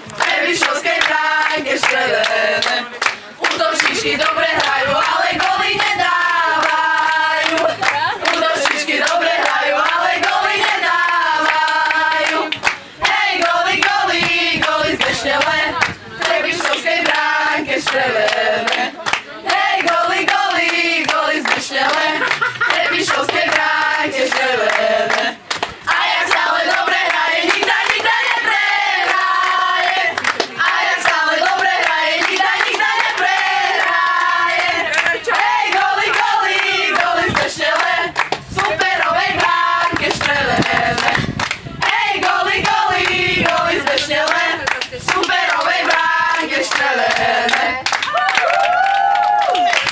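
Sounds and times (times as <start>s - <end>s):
hands clapping: 0.0s - 12.8s, 18.2s - 23.6s, 24.7s - 28.1s, 29.0s - 49.9s
women singing a chant: 0.2s - 48.6s.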